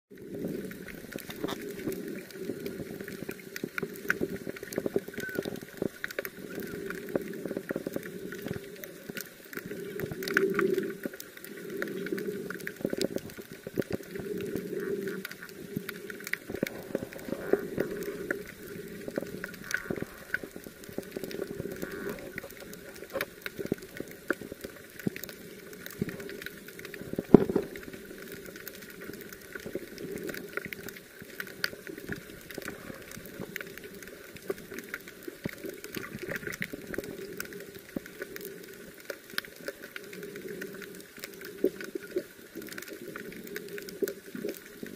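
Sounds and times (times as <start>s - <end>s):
muffled low underwater noise: 0.1s - 44.9s
small clicks and crackles: 0.1s - 44.9s.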